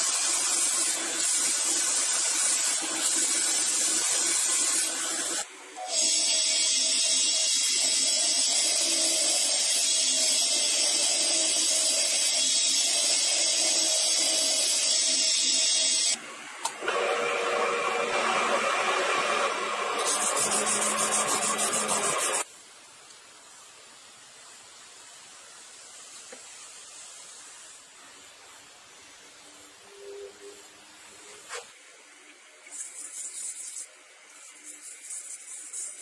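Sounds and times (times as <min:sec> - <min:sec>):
bench grinder whine: 0:16.8 - 0:22.4.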